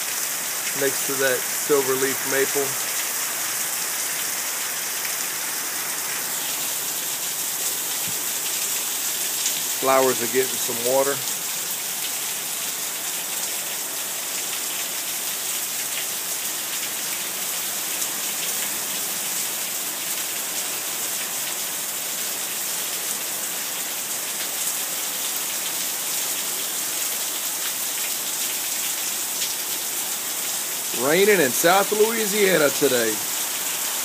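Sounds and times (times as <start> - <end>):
heavy rain on concrete: 0.0 - 34.0.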